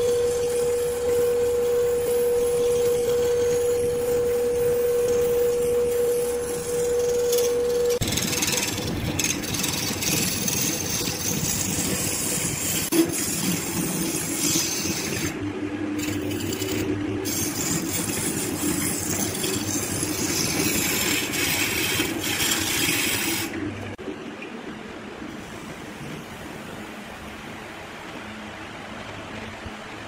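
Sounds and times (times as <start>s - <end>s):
wood lathe running: 0.0s - 15.4s, 16.0s - 23.6s
steady hum: 0.0s - 30.0s.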